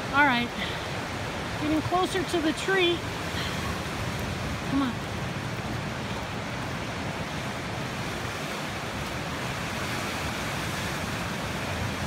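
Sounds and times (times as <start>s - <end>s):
waves breaking on shore: 0.0s - 12.0s.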